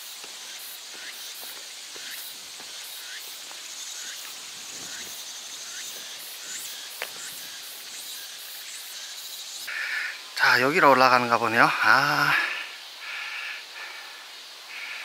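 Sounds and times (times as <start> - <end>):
footsteps on rocky trail: 0.0 - 7.6
insects droning: 0.0 - 15.0.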